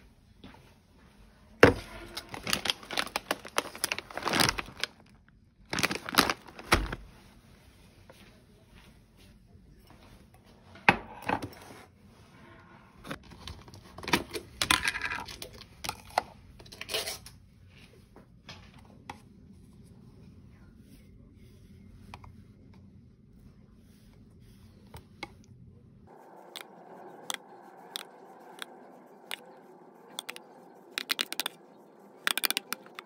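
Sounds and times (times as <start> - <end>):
packaging crinkling and tearing: 2.1 - 7.1.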